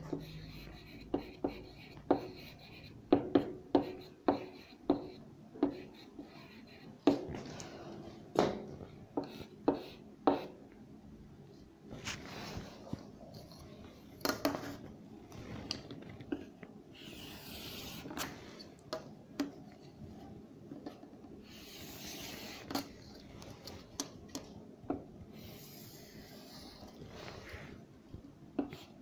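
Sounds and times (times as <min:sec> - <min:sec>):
pen scratching on paper: 0:00.0 - 0:07.0, 0:09.2 - 0:10.5, 0:17.0 - 0:18.3, 0:21.4 - 0:22.9.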